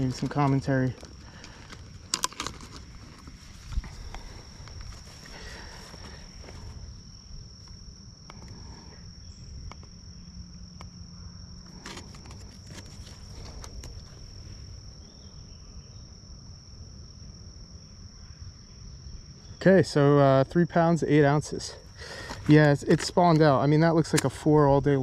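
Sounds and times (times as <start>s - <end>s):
handling clicks and rustles: 0.0s - 6.8s, 11.7s - 14.4s, 22.1s - 24.5s
insects trilling: 0.0s - 25.0s.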